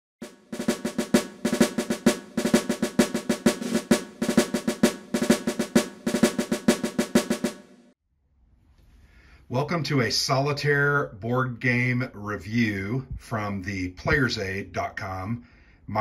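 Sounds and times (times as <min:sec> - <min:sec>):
fast snare drumming: 0:00.2 - 0:08.0.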